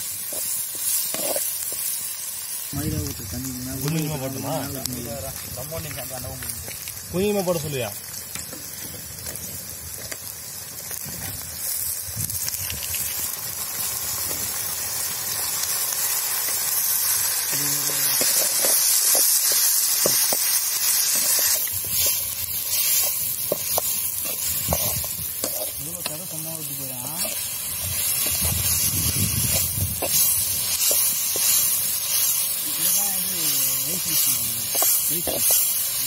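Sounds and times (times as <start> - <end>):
onions sizzling in hot oil: 0.0 - 36.0.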